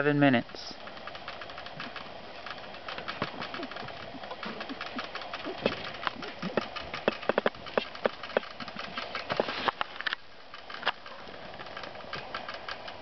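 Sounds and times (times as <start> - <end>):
dry hay crackling and rustling: 0.2 - 13.0.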